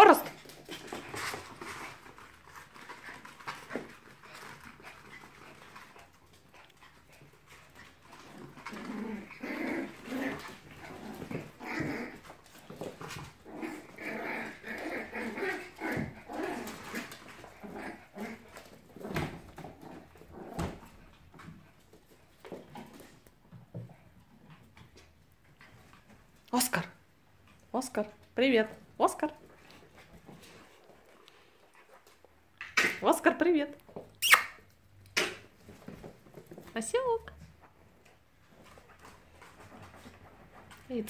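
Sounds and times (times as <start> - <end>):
puppies growling and whining: 7.9 - 21.3.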